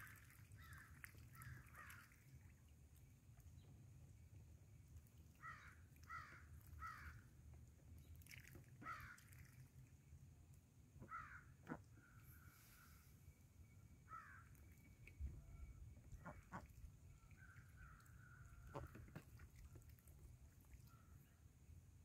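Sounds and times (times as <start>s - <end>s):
faint bird calls: 0.0s - 2.3s, 5.3s - 7.2s, 11.0s - 19.7s.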